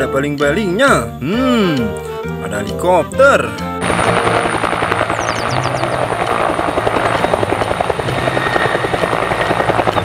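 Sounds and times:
helicopter high whine: 3.6 - 10.0
helicopter rotor blade slap: 3.8 - 10.0.

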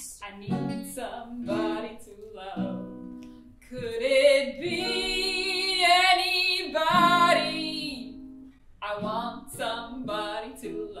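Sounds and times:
woman singing: 0.0 - 3.0, 3.6 - 8.2, 8.8 - 11.0
acoustic guitar strumming: 6.6 - 10.9.

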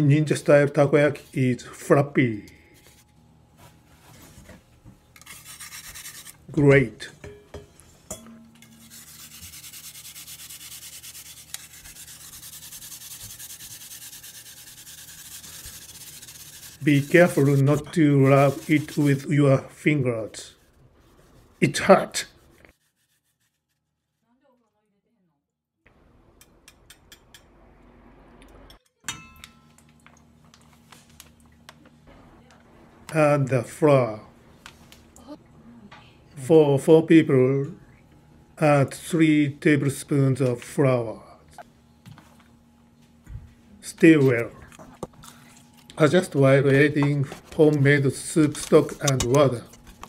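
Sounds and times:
yam rasping on metal grater: 5.2 - 6.4, 8.6 - 19.2
metal utensils clinking on steel bowl: 7.2 - 8.9.

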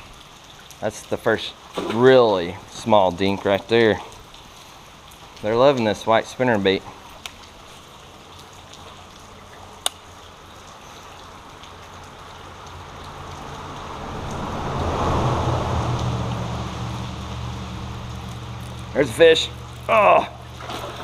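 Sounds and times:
creek water: 0.0 - 21.0
rain hissing: 0.0 - 21.0
vehicle rumbling over bridge: 11.3 - 21.0.

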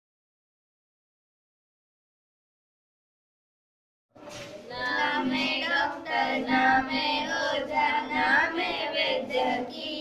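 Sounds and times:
girls singing together: 4.6 - 10.0.

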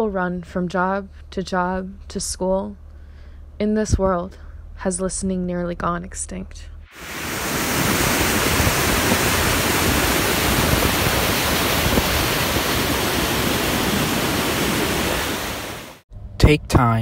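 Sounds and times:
whitewater rushing over boulders: 7.0 - 16.0.

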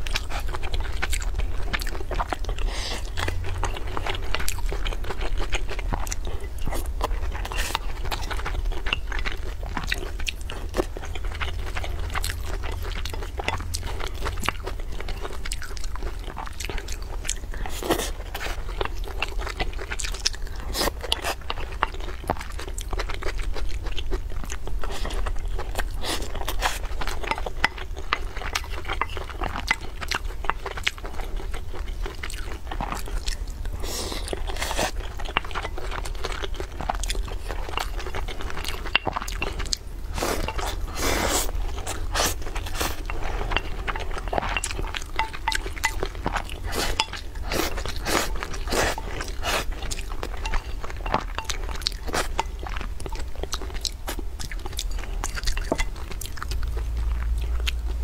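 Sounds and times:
low steady hum: 0.0 - 58.0
person chewing food: 0.0 - 58.0
wooden spoon scraping bowl: 38.5 - 53.2.

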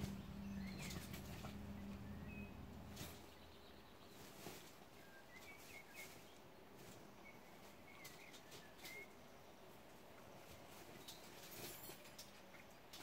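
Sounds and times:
low hum: 0.0 - 3.8
faint bird chirps: 0.0 - 9.8.

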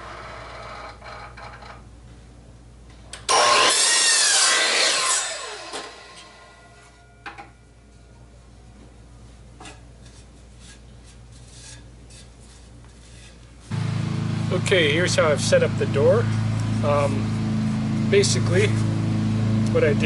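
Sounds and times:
miter saw cutting wood: 3.3 - 6.5
saw blade winding down whine: 3.3 - 7.1.

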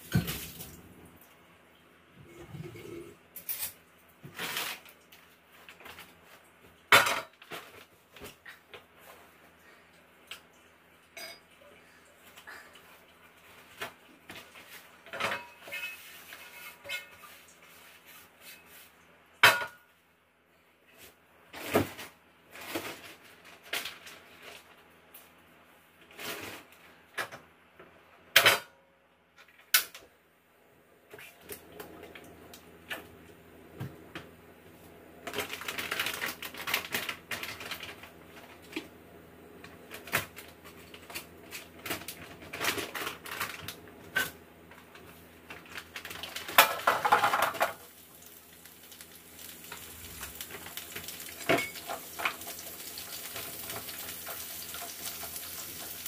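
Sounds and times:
crinkly rustling: 21.6 - 24.8, 35.2 - 38.8, 39.9 - 43.8, 44.8 - 56.0.

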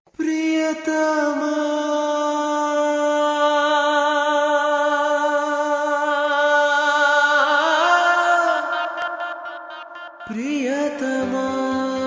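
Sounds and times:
person singing long note: 10.2 - 12.0.

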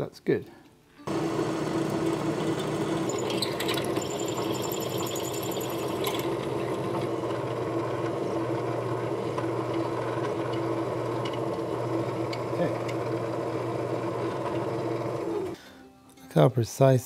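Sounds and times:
drill motor humming: 1.1 - 15.6
high squeal of drill cutting: 2.4 - 7.1.

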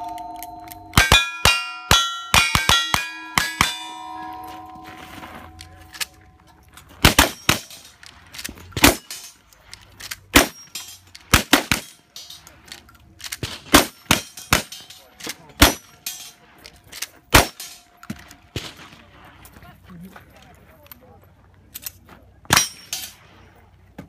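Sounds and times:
rifle shots: 7.0 - 7.8, 8.8 - 9.1, 10.3 - 10.6, 11.3 - 12.0, 13.4 - 14.8, 15.6 - 15.8, 17.3 - 17.7.

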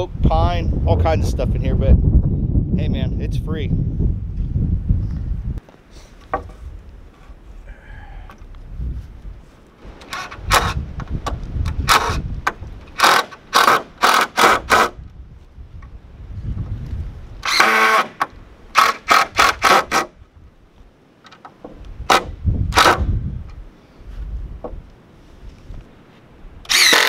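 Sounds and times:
impact driver driving screws: 13.0 - 14.9, 17.4 - 18.2, 18.8 - 20.1, 22.1 - 23.0, 26.7 - 27.0.

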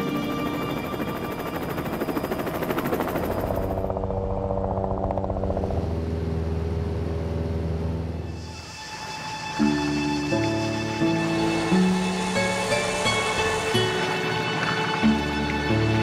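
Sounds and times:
helicopter rotor chop: 0.1 - 8.1
low engine drone: 2.9 - 9.0, 9.6 - 15.5.

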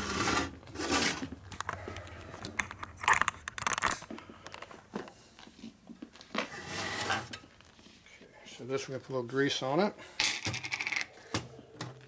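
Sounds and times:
handling noise on a workbench: 0.0 - 1.8, 2.4 - 8.0.

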